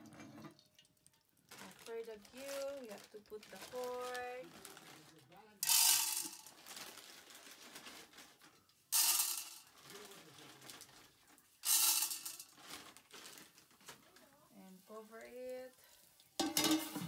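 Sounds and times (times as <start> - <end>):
popcorn kernels rattling in metal pot: 1.6 - 4.5, 5.6 - 14.0, 14.8 - 17.0.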